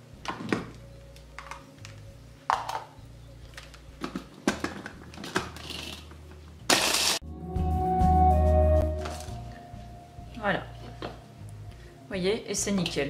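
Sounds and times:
low hum: 7.2s - 12.0s.

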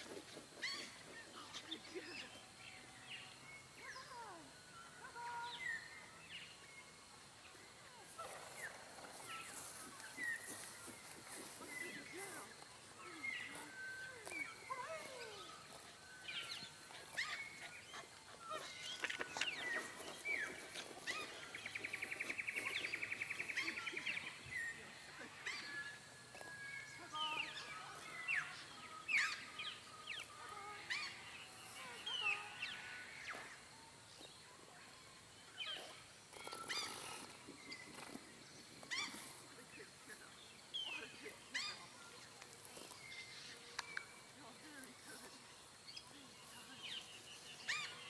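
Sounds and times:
birds whistling and chirping: 0.0s - 48.0s
rapid buzzy bird trill: 35.9s - 38.1s.

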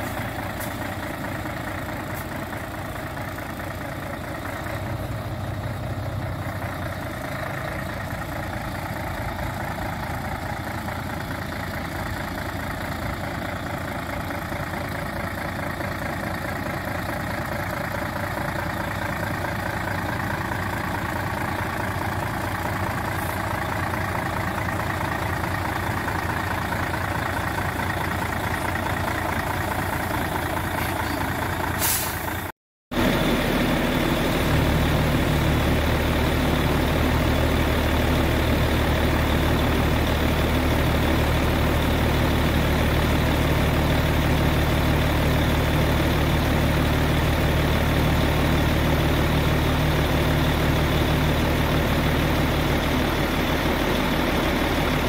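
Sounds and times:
diesel truck engine idling: 0.0s - 55.0s
short air hiss: 31.8s - 32.5s.

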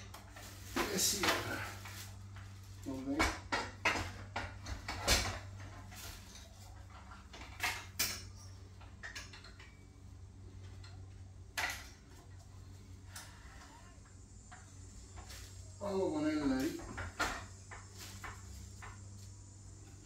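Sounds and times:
steady low hum: 0.0s - 20.0s
metal clinks and knocks: 3.2s - 12.5s.

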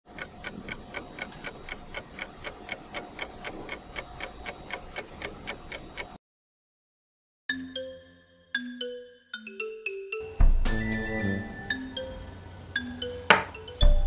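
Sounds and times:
steady ticking: 0.1s - 6.2s.

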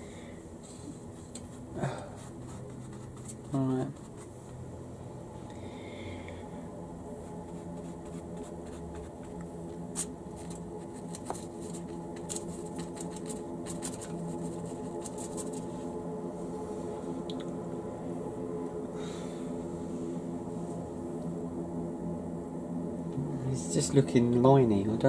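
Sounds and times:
steady low hum: 0.0s - 25.0s
paintbrush scratchy ticks and dabs: 1.0s - 4.4s, 7.2s - 15.8s.

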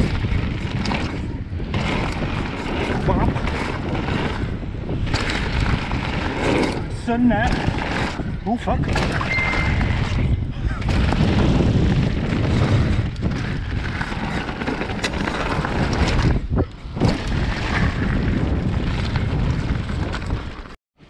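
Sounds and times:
wind on microphone: 0.0s - 20.8s.

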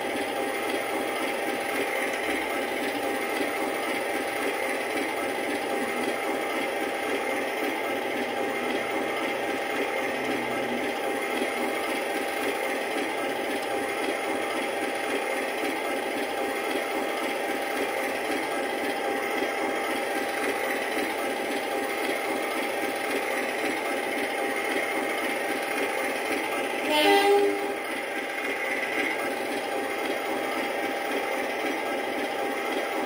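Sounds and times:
diesel locomotive idling: 0.0s - 33.0s
locomotive horn blast: 26.8s - 27.9s.

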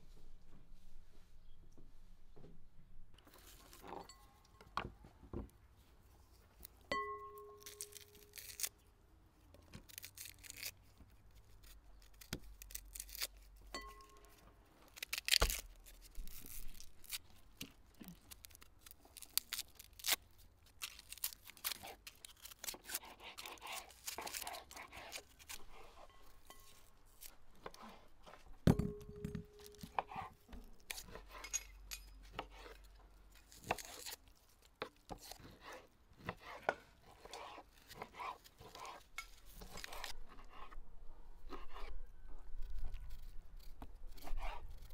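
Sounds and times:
knife scraping: 7.0s - 8.8s, 9.8s - 17.4s, 20.8s - 40.8s, 41.4s - 44.9s
onion skin crackling and tearing: 7.5s - 26.1s, 29.5s - 31.4s, 32.6s - 35.5s, 37.4s - 40.5s, 42.1s - 44.9s.

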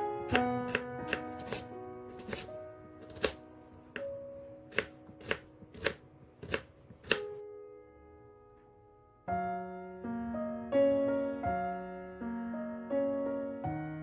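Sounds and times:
background music: 0.0s - 14.0s
knife chopping on wooden board: 0.3s - 3.4s, 4.7s - 7.4s.

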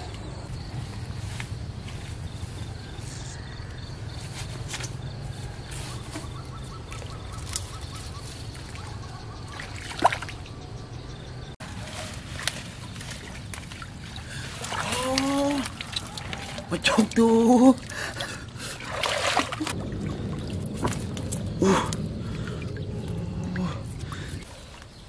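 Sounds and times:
water sloshing around legs: 6.2s - 10.6s, 11.6s - 24.4s.

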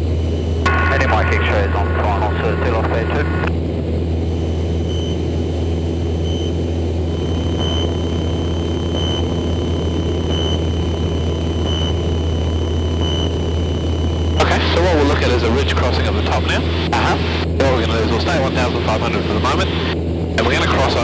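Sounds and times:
aircraft engine and propeller droning: 0.0s - 21.0s
pulsing high tone: 4.8s - 5.2s, 6.1s - 15.2s.

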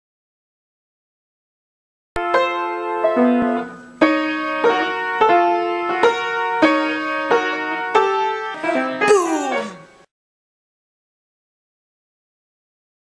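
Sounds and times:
piano chords: 2.2s - 10.1s.

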